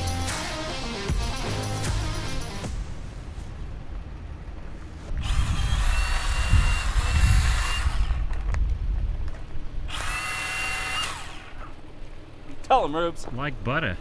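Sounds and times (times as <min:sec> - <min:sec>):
low rumbling: 0:01.7 - 0:13.1
high motor whine: 0:04.4 - 0:12.7.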